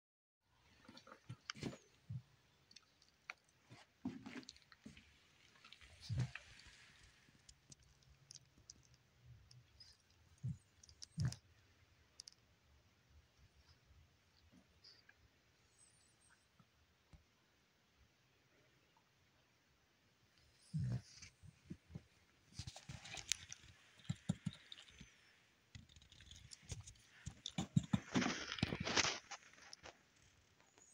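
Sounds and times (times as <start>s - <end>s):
puppies scrabbling in basket: 26.5s - 29.4s.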